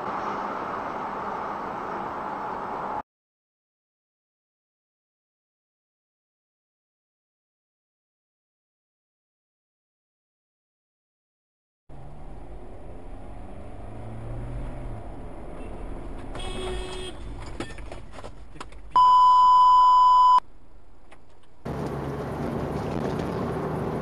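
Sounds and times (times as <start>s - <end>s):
car engine: 0.0s - 3.0s, 11.9s - 19.0s, 20.4s - 24.0s
road noise: 0.0s - 3.0s, 11.9s - 19.5s, 20.1s - 24.0s
high beep tone: 19.0s - 20.4s.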